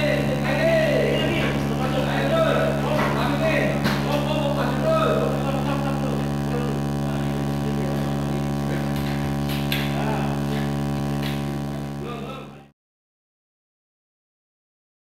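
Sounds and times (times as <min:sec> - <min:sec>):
low machine hum: 0:00.0 - 0:12.7.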